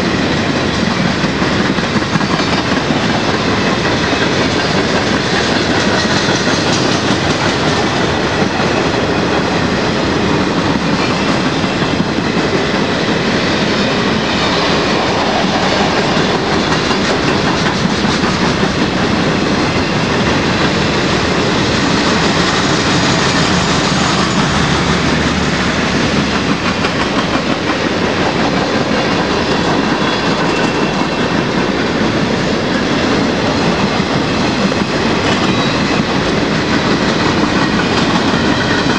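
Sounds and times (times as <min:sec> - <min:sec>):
steel wheels on rails: 0:00.0 - 0:38.9.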